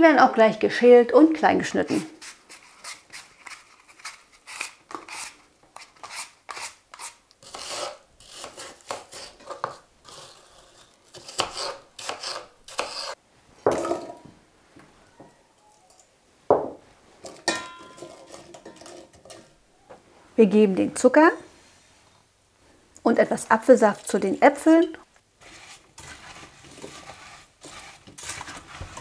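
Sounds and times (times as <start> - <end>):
knife peeling and chopping apples: 1.6 - 13.2, 16.6 - 19.6, 23.1 - 29.0
spatula scraping into metal pot: 6.0 - 13.2, 17.2 - 19.5, 25.4 - 29.0
knocks and ring of pot: 17.4 - 18.8.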